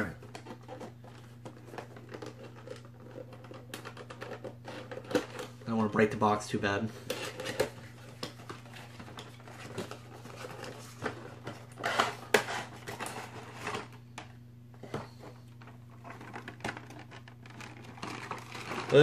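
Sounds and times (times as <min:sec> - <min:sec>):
plastic package rustling: 0:00.0 - 0:06.1, 0:06.9 - 0:14.1, 0:14.9 - 0:19.0.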